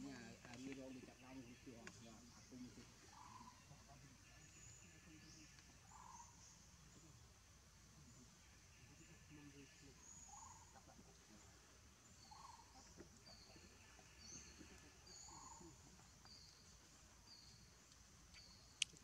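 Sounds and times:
faint forest ambience: 0:00.0 - 0:19.0
short lower bird calls: 0:03.1 - 0:06.6, 0:12.2 - 0:16.6.

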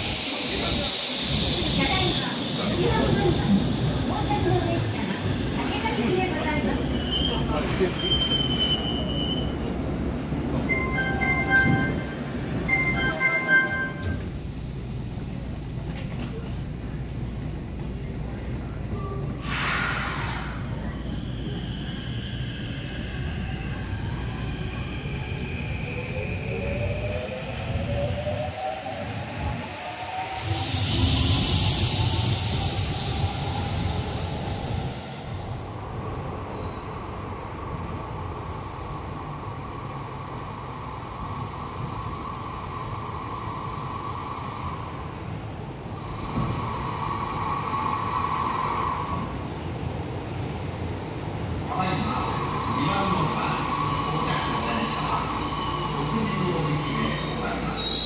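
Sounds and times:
train rumbling low: 0:00.0 - 0:58.0
train door chime: 0:10.7 - 0:14.3
rush of air: 0:19.4 - 0:20.7.

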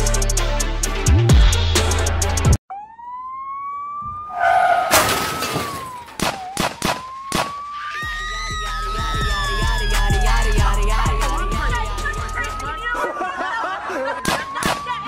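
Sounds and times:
beat music: 0:00.0 - 0:02.6, 0:08.1 - 0:13.2
siren wailing: 0:02.7 - 0:15.0.

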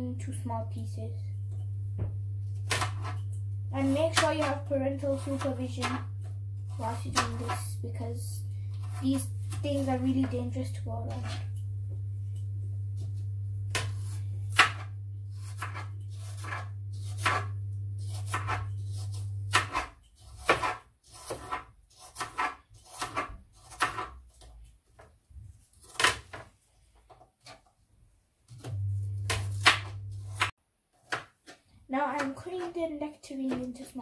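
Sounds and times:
steady low hum: 0:00.0 - 0:19.7, 0:28.6 - 0:30.5
knife chopping on plastic board: 0:02.0 - 0:03.2, 0:03.8 - 0:06.1, 0:13.7 - 0:24.5, 0:28.5 - 0:31.6.

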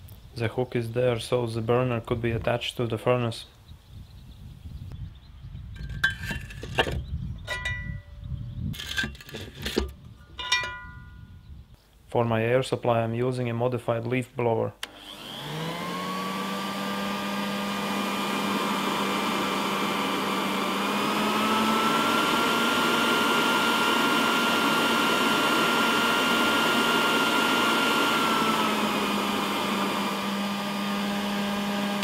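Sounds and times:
leaf blower motor whine: 0:14.8 - 0:32.0.

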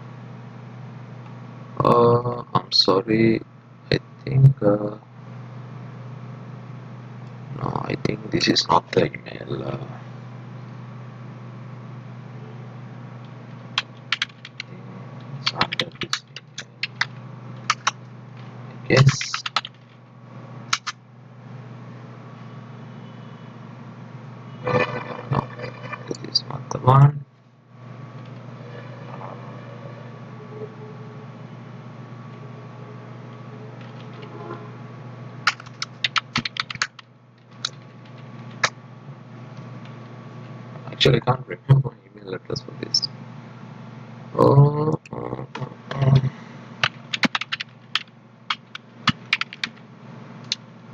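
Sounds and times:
steady low hum: 0:00.0 - 0:50.9
computer keyboard typing: 0:13.8 - 0:14.7, 0:15.4 - 0:18.0, 0:19.0 - 0:19.8, 0:20.7 - 0:21.0, 0:35.5 - 0:38.7, 0:46.8 - 0:49.8.

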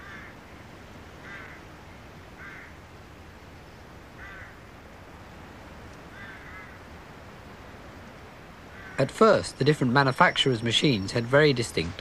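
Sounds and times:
bird calling: 0:00.0 - 0:04.8, 0:05.9 - 0:07.0, 0:08.6 - 0:12.0.

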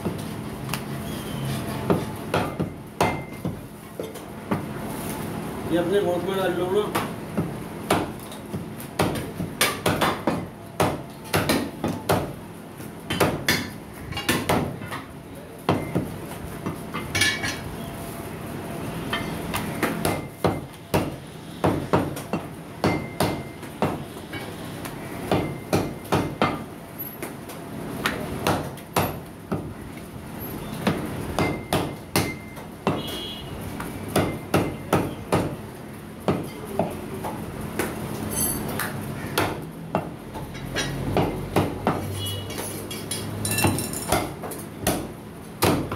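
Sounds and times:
cleaver chopping meat: 0:06.9 - 0:12.3, 0:34.1 - 0:35.6, 0:39.3 - 0:40.2, 0:41.1 - 0:42.2, 0:44.1 - 0:45.9.

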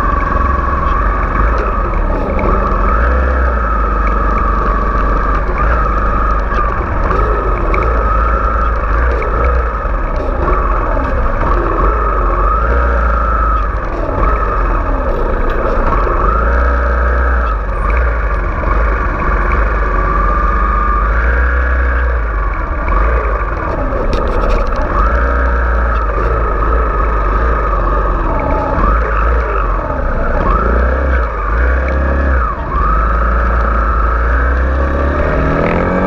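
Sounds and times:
motorcycle engine revving: 0:00.0 - 0:36.0.

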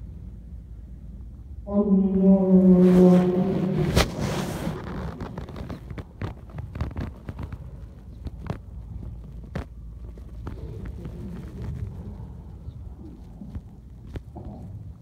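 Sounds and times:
long chanted note: 0:01.6 - 0:03.9.

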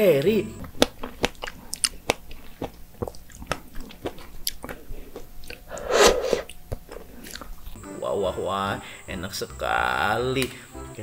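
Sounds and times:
wet chewing and mouth smacks: 0:00.6 - 0:07.8
loud noisy mouth sound: 0:05.5 - 0:07.4.

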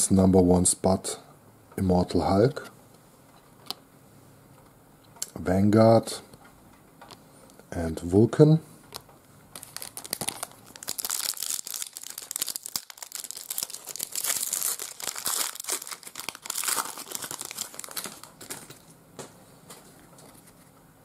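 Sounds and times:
foil wrapper crinkling and tearing: 0:09.6 - 0:18.8.

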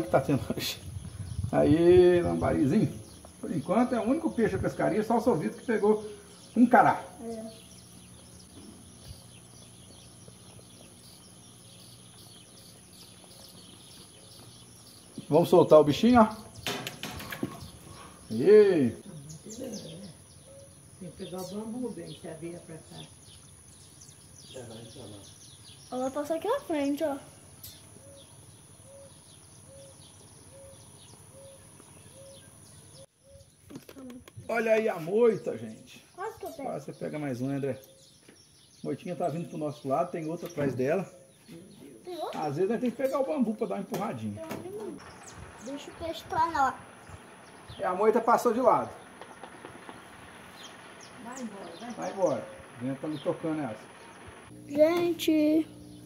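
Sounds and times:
bird calling low note: 0:00.0 - 0:16.6, 0:17.5 - 0:22.3, 0:22.9 - 0:33.6, 0:44.8 - 0:56.0
faint high bird chirps: 0:05.6 - 0:34.6, 0:35.4 - 0:43.2
small high chirps: 0:07.2 - 0:15.3.

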